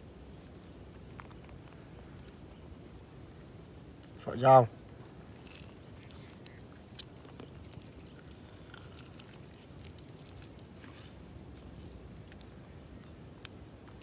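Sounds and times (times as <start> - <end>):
low steady background noise: 0.0 - 14.0
hands squeezing limes: 5.0 - 12.5.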